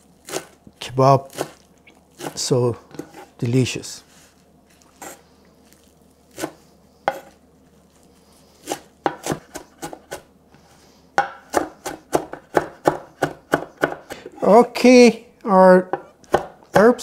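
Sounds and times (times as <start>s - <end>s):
knife chopping on wooden board: 6.4s - 7.4s, 8.6s - 10.2s, 11.2s - 14.2s, 15.9s - 17.0s.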